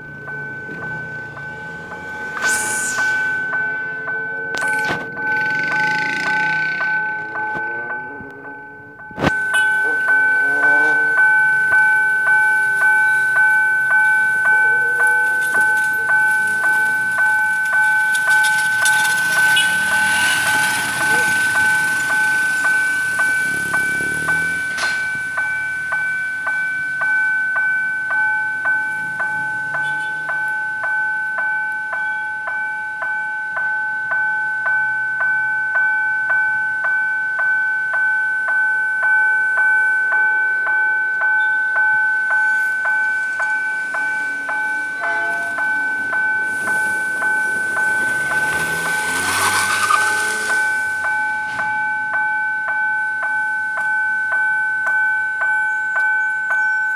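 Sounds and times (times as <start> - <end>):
crossing warning bell ringing: 0.0 - 56.9
diesel locomotive engine rumbling: 0.0 - 56.9
hiss: 2.4 - 3.4.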